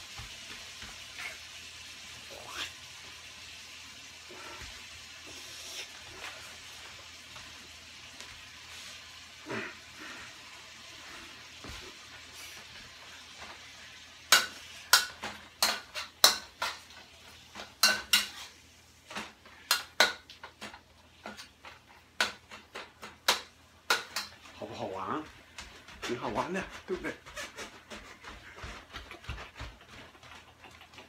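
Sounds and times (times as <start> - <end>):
meat sizzling in a wok: 0.0 - 25.1
spatula scraping a wok: 14.3 - 20.6.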